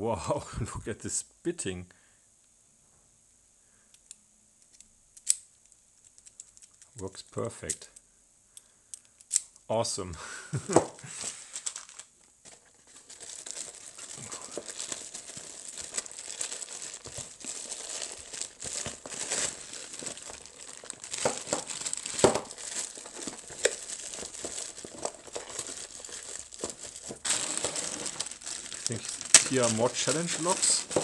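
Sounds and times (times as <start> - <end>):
plastic bags crinkling: 11.1 - 31.0.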